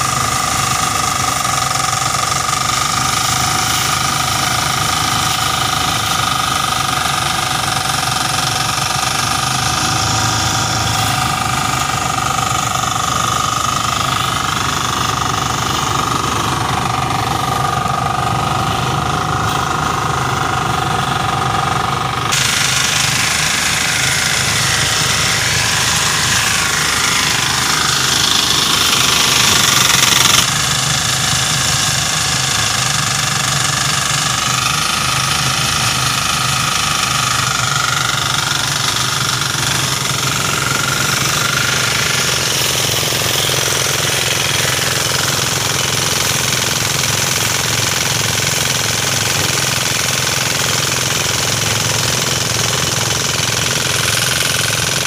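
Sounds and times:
diesel engine chugging: 0:00.0 - 0:55.0
spinning drum whine: 0:00.0 - 0:55.0
rushing hiss: 0:22.3 - 0:49.2.

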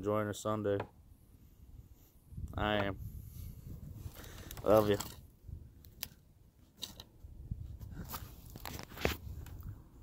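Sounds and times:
fabric rustling on microphone: 0:07.6 - 0:09.6.

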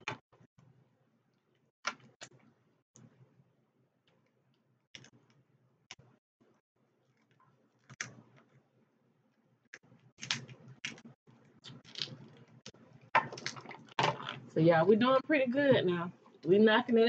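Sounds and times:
seafood shells cracking: 0:09.8 - 0:12.6, 0:13.2 - 0:14.0.

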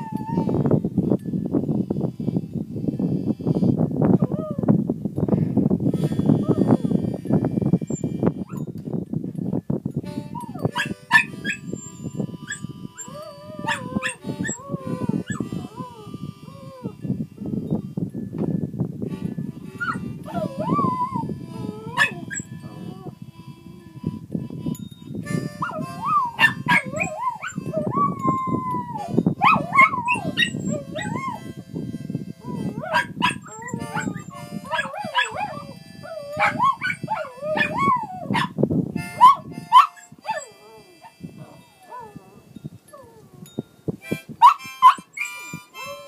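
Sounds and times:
wind buffeting microphone: 0:00.0 - 0:46.0
dog yipping: 0:10.4 - 0:11.6, 0:12.5 - 0:16.0, 0:19.8 - 0:23.0, 0:25.6 - 0:31.4, 0:32.4 - 0:38.6, 0:39.2 - 0:41.1, 0:44.4 - 0:46.0
small dog howling: 0:13.0 - 0:17.0, 0:19.8 - 0:23.2, 0:25.7 - 0:31.4, 0:32.4 - 0:38.4.

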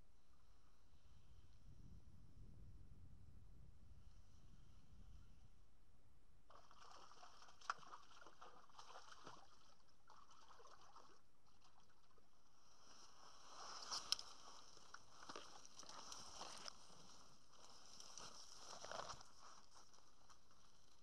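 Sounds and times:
water sloshing and trickling: 0:06.5 - 0:12.5.

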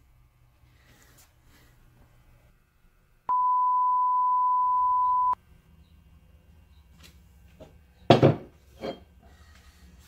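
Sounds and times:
test-tone beep: 0:03.3 - 0:05.4.

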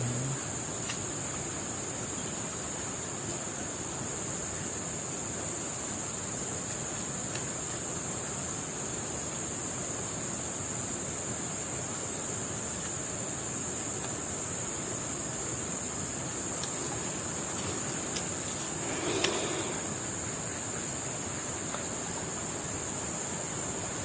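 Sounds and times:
insect chorus drone: 0:00.0 - 0:24.0
low background hiss: 0:00.0 - 0:24.0.

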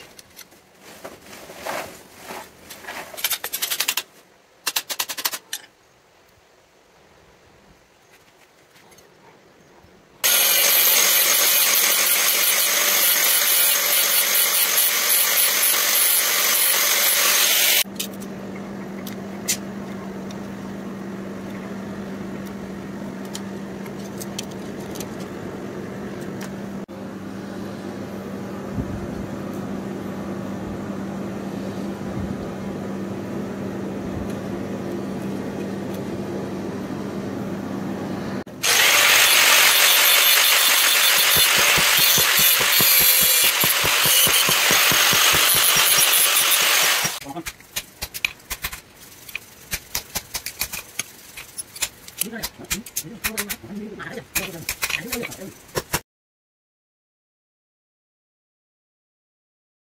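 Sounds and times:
power tool hissing on steel: 0:10.2 - 0:17.9, 0:38.5 - 0:47.2
motor hum: 0:10.2 - 0:47.2.

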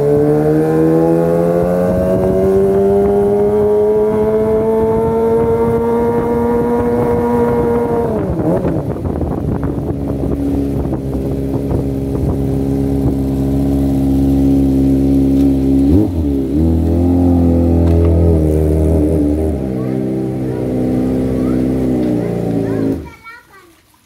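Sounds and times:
motorcycle exhaust rumble: 0:00.0 - 0:23.1.

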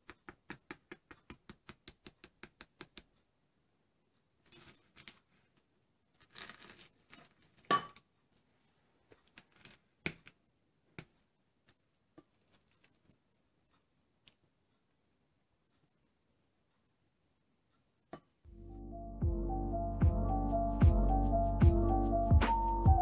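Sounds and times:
spoon tapping pastry crust: 0:00.0 - 0:03.1
pastry crust crackling and crunching: 0:06.2 - 0:07.7, 0:09.2 - 0:10.4, 0:11.6 - 0:13.1.

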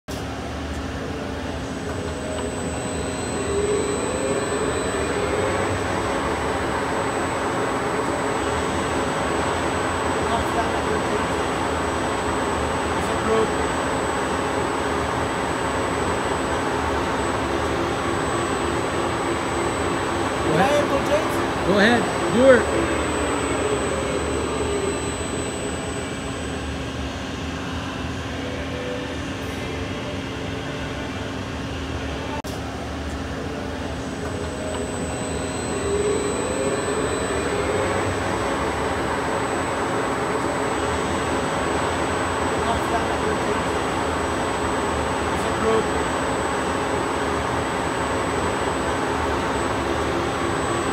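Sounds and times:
lathe mechanical drone: 0:00.1 - 0:50.9
faint steady tones: 0:01.1 - 0:27.2, 0:33.5 - 0:44.8.

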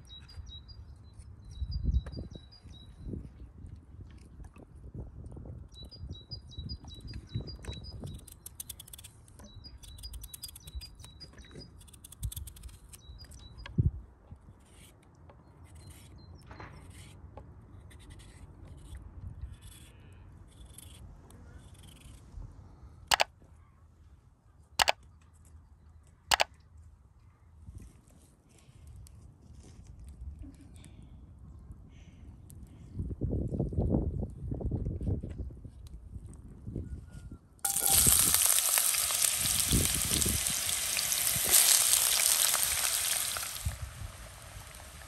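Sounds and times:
bird chirping: 0:05.8 - 0:13.7
knife peeling and cutting potatoes: 0:15.6 - 0:22.2.

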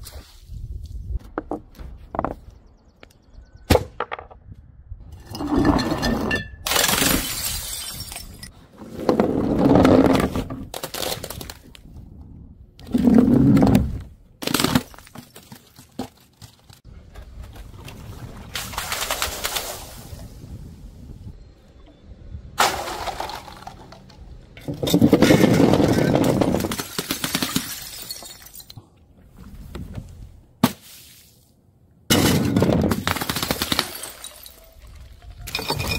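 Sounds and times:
water splashing: 0:17.7 - 0:20.3.

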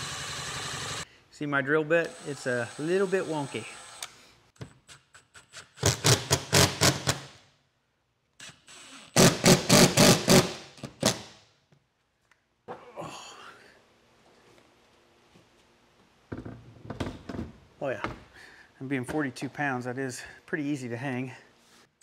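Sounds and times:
cordless drill driving screws: 0:00.0 - 0:01.0, 0:08.4 - 0:11.2.

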